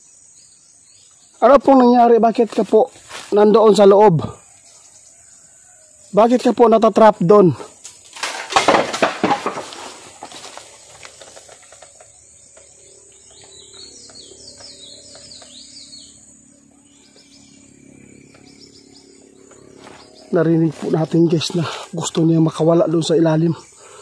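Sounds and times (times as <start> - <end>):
small birds chirping: 0.0 - 8.1, 9.7 - 24.0
dry bamboo leaves rustling: 2.4 - 3.9, 7.7 - 12.4.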